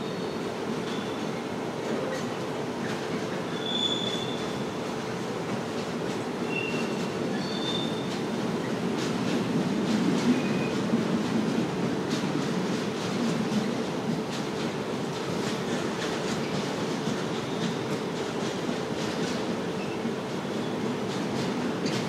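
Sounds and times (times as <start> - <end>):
train wheels rumbling on rail: 0.0 - 22.0
high wheel squeals: 3.5 - 4.5, 6.5 - 8.0.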